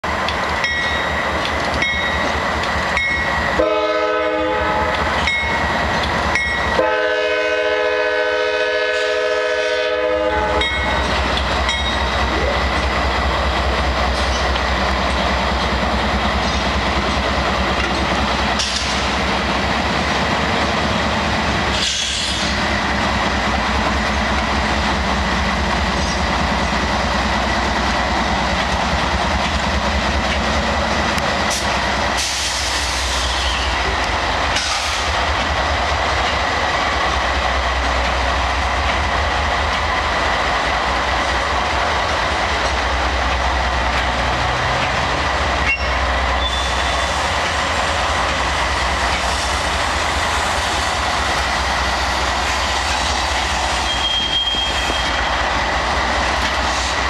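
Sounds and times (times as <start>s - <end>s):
locomotive engine rumble: 0.0s - 57.0s
locomotive air horn: 3.6s - 5.0s, 6.8s - 10.8s.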